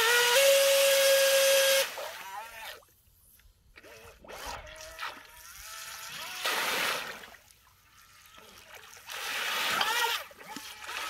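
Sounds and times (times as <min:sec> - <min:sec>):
water jet churning and spraying: 0:03.8 - 0:11.0.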